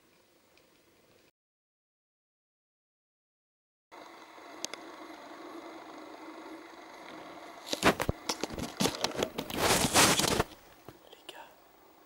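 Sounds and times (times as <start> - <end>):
low hum and hiss: 4.0 - 12.0
crackles and rustle of leaves: 7.6 - 11.2.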